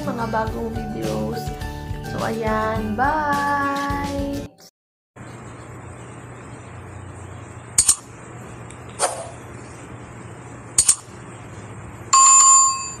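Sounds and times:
low hum and hiss: 5.2s - 12.9s.

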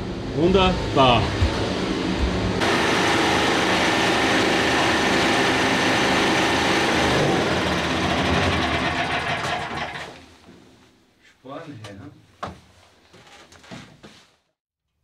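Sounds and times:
generator running: 1.2s - 10.3s.

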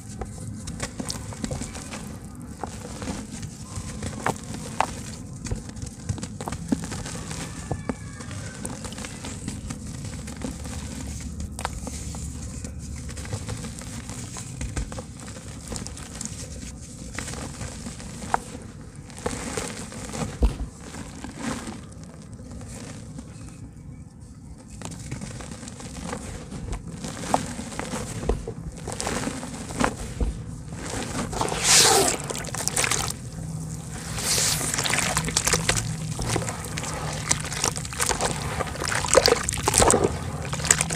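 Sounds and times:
dirt crumbling into water: 30.9s - 40.9s
hands sloshing muddy water: 31.2s - 40.9s.

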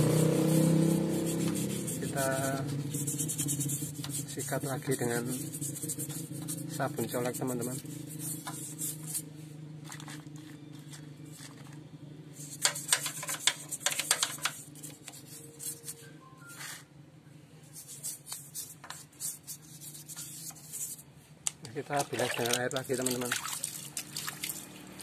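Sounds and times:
steady low hum: 0.0s - 13.8s
brush scrubbing engine casing: 0.0s - 16.0s, 21.8s - 25.0s.

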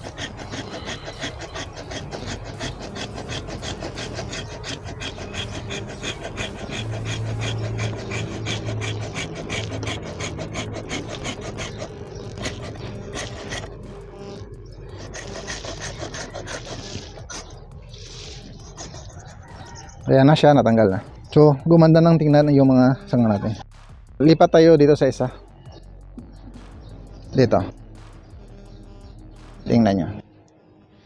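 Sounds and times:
hand saw rasping through wood: 0.0s - 13.8s, 14.9s - 20.0s
low hum: 0.0s - 20.1s, 22.9s - 31.0s.

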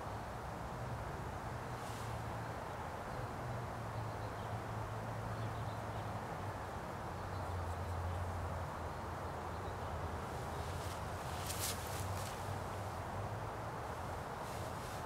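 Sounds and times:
even hiss: 10.3s - 13.0s.

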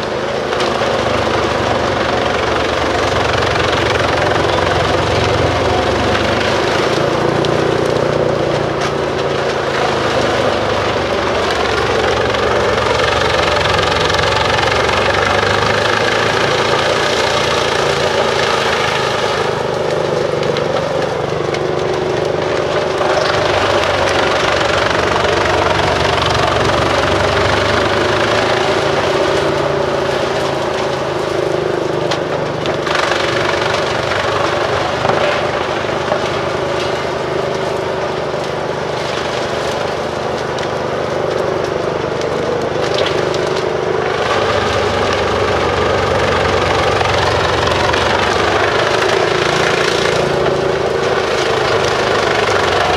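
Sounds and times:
wood chipper diesel engine drone: 0.0s - 52.9s.

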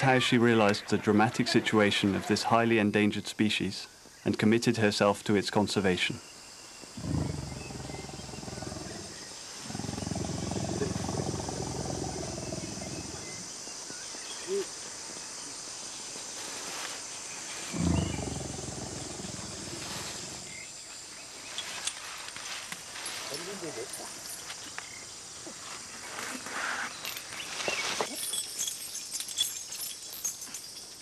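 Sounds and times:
insects chirring: 0.0s - 31.0s
elephant calling: 7.0s - 13.4s, 17.7s - 20.5s.

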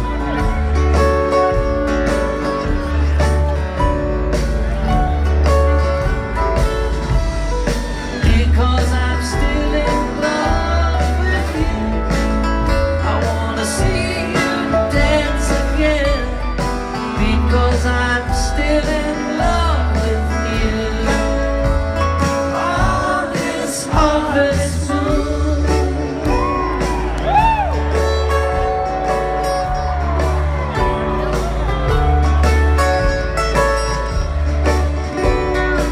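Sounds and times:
deep upright bass notes: 0.0s - 35.9s
live string band playing: 0.0s - 35.9s
person singing lead vocal: 7.8s - 26.9s.

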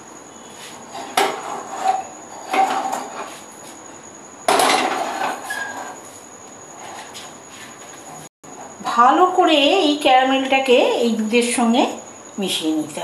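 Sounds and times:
spatula scraping in wok: 0.5s - 3.4s.

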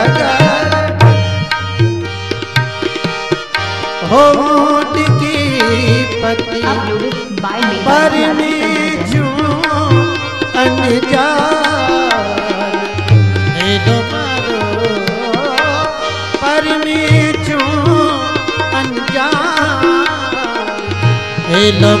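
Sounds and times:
hand drum rhythm: 0.0s - 15.8s.

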